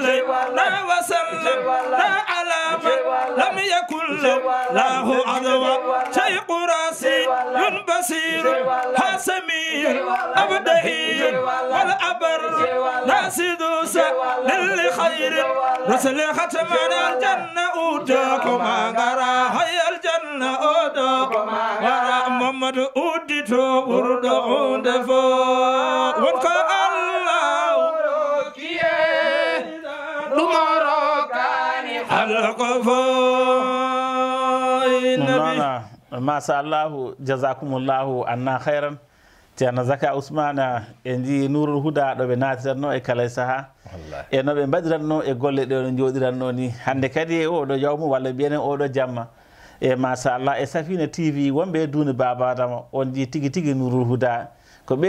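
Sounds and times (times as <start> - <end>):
men singing unaccompanied chant: 0.0 - 39.0.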